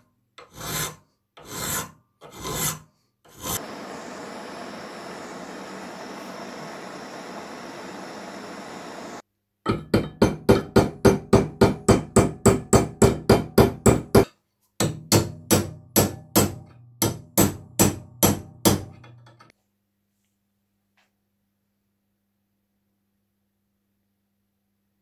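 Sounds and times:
gas torch hissing: 0:03.4 - 0:09.2
rapid hammer blows on metal: 0:10.2 - 0:18.9.

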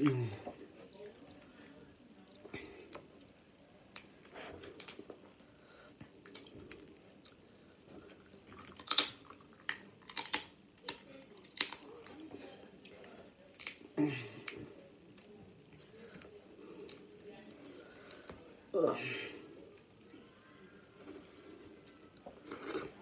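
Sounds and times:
crab shell cracking: 0:03.9 - 0:05.1, 0:08.6 - 0:12.2, 0:13.5 - 0:15.3, 0:16.8 - 0:18.4.

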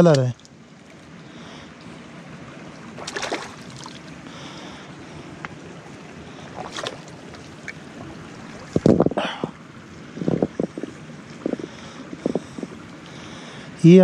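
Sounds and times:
water trickling over stones: 0:00.0 - 0:14.0
hand splashing in water: 0:03.0 - 0:04.0, 0:06.5 - 0:07.8.

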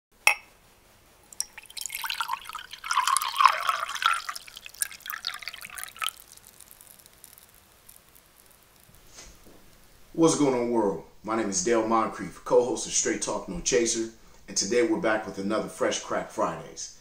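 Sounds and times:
liquor poured over ice: 0:01.3 - 0:09.1
ice crackling and clicking: 0:03.7 - 0:09.0.

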